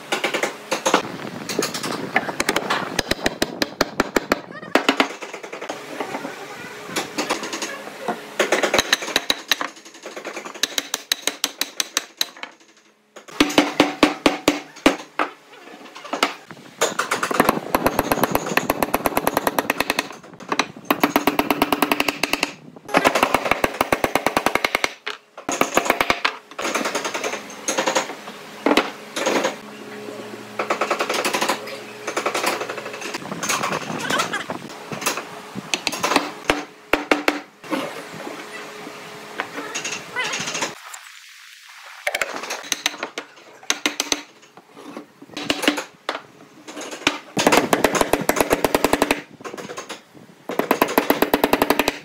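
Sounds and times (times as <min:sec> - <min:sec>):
hammer striking nails into wood: 0:35.7 - 0:37.4.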